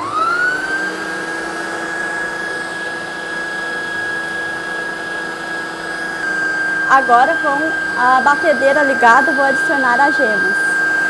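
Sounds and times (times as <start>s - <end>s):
beaters whipping egg whites: 0.0s - 11.0s
stand mixer motor whine: 0.0s - 11.0s.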